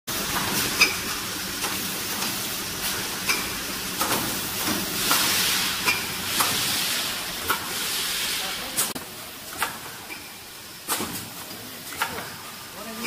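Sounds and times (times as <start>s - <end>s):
printing machine hissing: 0.1s - 13.0s
machine clicks and clacks: 3.2s - 6.6s, 10.8s - 12.4s.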